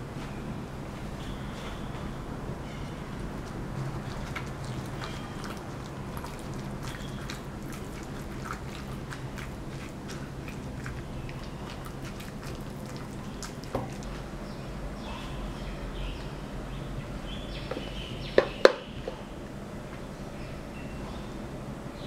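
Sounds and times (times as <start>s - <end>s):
steady low hum: 0.0s - 22.0s
spatula stirring in metal bowl: 3.4s - 14.2s.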